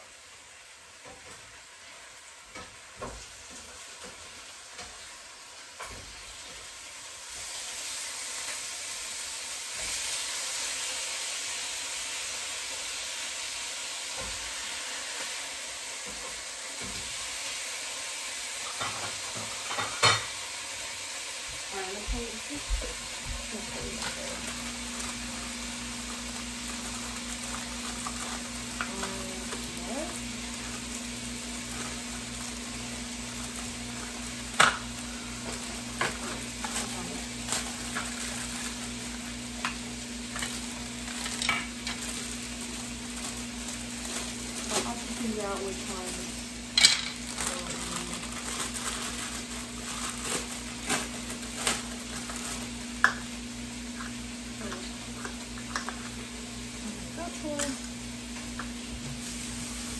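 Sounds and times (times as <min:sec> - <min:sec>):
food sizzling in a frying pan: 0:00.0 - 0:59.9.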